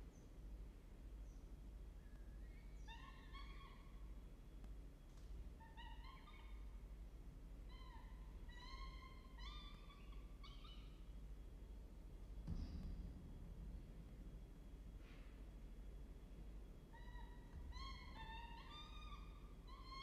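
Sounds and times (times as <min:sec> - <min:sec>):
low steady rumble: 0:06.3 - 0:20.0.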